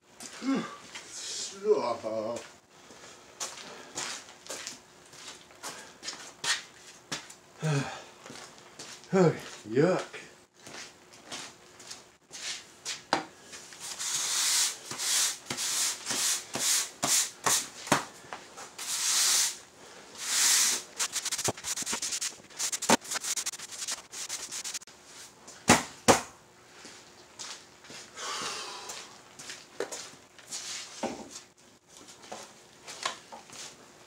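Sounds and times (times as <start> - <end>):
push broom sweeping concrete: 13.8 - 17.8, 18.7 - 19.6, 20.2 - 25.2.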